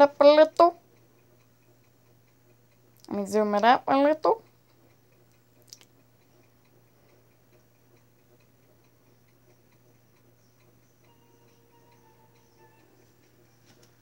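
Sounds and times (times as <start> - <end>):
faint rapid ticking: 0.0 - 14.0
low steady hum: 0.0 - 14.0
faint menu music: 10.4 - 14.0.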